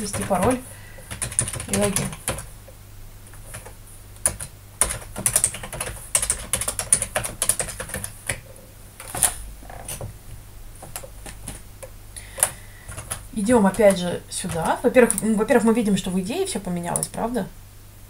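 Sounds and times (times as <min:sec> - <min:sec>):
keyboard typing: 0:00.0 - 0:02.5, 0:03.3 - 0:10.1, 0:10.8 - 0:15.4, 0:16.9 - 0:17.2.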